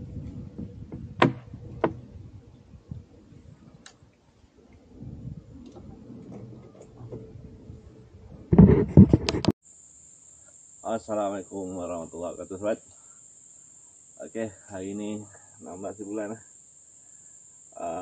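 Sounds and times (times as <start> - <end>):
low rumble: 4.7 - 8.6.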